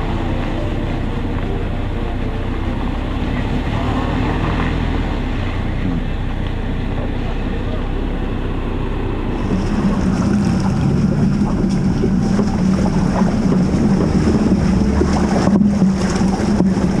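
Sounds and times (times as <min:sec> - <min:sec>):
car engine humming: 0:00.0 - 0:17.0
wind noise on microphone: 0:09.2 - 0:17.0.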